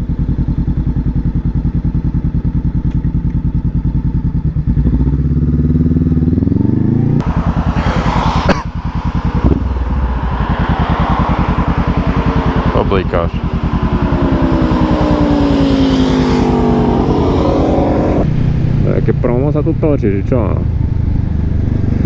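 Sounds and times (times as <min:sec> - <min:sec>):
motorcycle engine revving: 0:00.0 - 0:22.0
wind noise: 0:06.9 - 0:12.7, 0:20.6 - 0:22.0.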